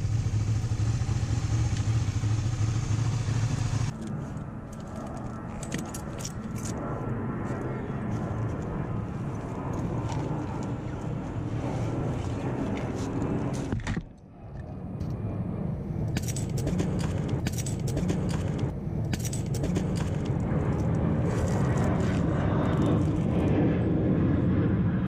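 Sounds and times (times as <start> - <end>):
motorcycle engine and wind noise: 0.0 - 14.1, 15.2 - 25.0.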